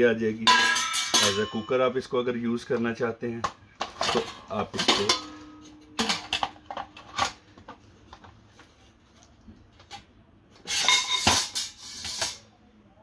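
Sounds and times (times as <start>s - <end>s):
metal clanking and ring: 0.5s - 2.0s, 4.1s - 7.0s
pot lid clinking: 4.0s - 7.3s.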